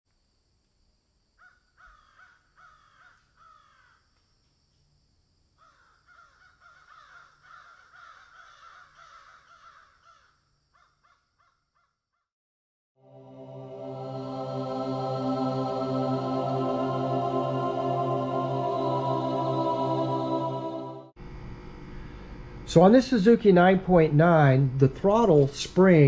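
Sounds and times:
short falling animal calls: 0:05.6 - 0:10.3.

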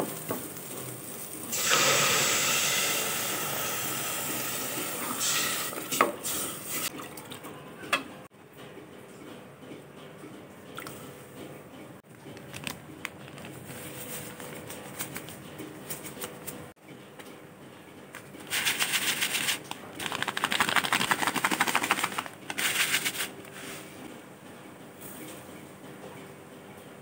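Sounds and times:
plastic packets crinkling: 0:12.2 - 0:15.4, 0:18.5 - 0:23.4.

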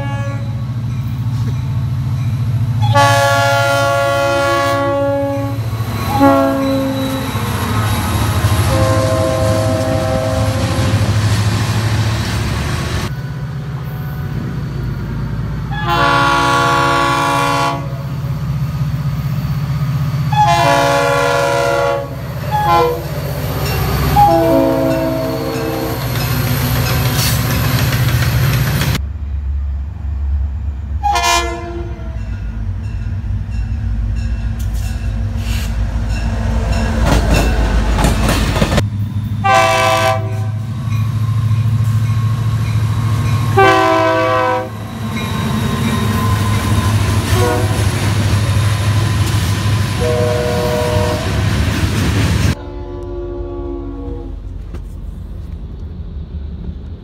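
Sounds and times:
locomotive horn blasts: 0:00.0 - 0:00.6, 0:02.8 - 0:07.5, 0:08.6 - 0:11.1, 0:15.7 - 0:18.1, 0:20.3 - 0:23.2, 0:24.1 - 0:26.0, 0:31.0 - 0:32.3, 0:39.4 - 0:40.7, 0:43.5 - 0:45.0, 0:47.2 - 0:48.1, 0:49.9 - 0:51.4, 0:52.5 - 0:54.5
locomotive and wagons rumbling: 0:18.1 - 0:57.0.

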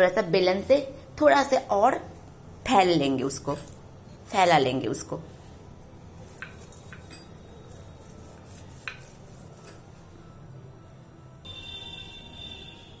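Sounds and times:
rolling pin rolling dough: 0:05.4 - 0:10.2.

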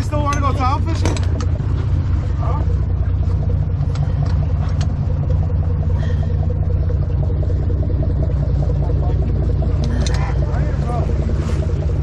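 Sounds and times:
boat engine rumbling: 0:00.0 - 0:12.0.

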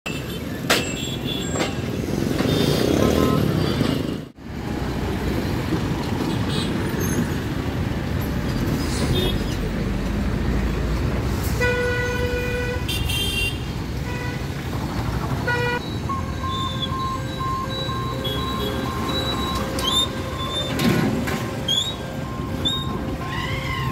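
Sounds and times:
road traffic: 0:00.0 - 0:23.9
vehicles passing close: 0:00.1 - 0:23.9
vehicle horns honking: 0:02.4 - 0:03.8, 0:11.6 - 0:14.5, 0:15.4 - 0:23.9.

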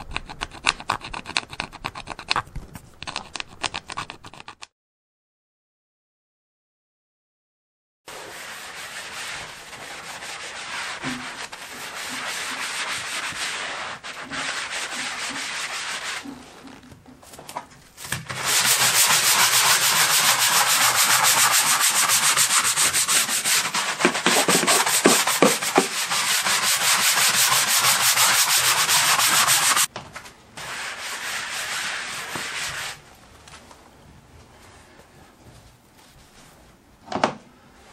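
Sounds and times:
scrubber scrubbing wet wooden floor: 0:08.1 - 0:16.8, 0:18.3 - 0:29.9, 0:30.6 - 0:33.0.

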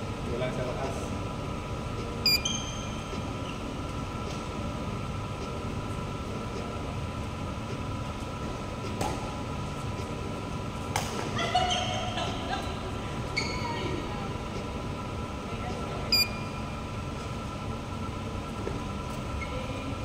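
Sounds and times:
ventilation hum: 0:00.0 - 0:20.0
shoe squeak on court floor: 0:02.3 - 0:03.6, 0:13.4 - 0:13.7.

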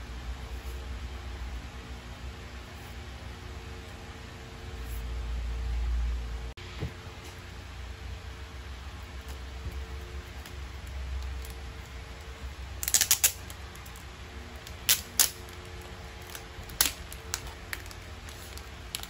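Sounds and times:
low hum: 0:00.0 - 0:19.0
plastic and paper crinkling: 0:12.8 - 0:19.0.

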